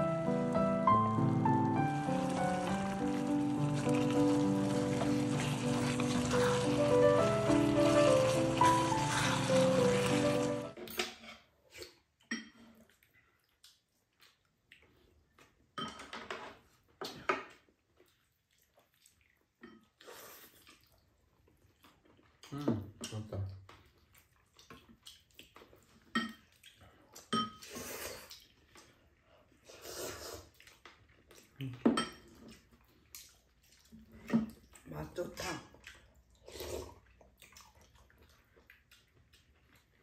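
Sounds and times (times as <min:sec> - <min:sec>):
people slurping noodles: 0:02.2 - 0:10.7, 0:29.6 - 0:30.6, 0:36.4 - 0:37.2.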